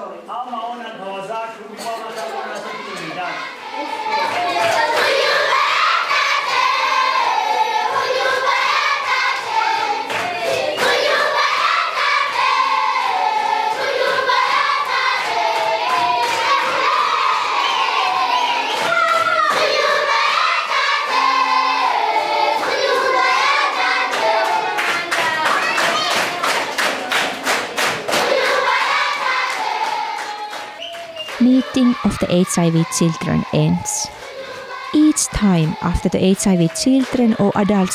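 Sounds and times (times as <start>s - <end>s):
children singing in chorus: 2.6s - 26.2s, 28.1s - 30.6s, 33.9s - 35.0s
hand claps: 24.1s - 28.4s, 29.5s - 31.4s.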